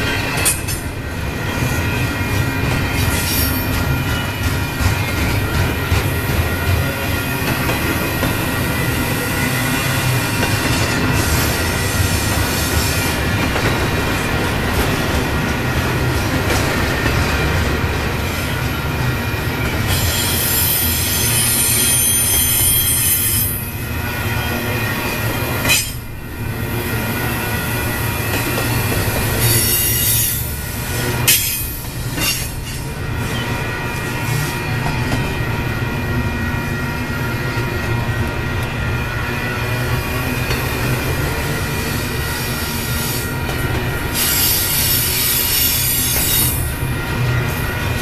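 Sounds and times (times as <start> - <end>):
train wheels on rails: 0.0 - 48.0
high-pitched wheel squeal: 19.9 - 23.6.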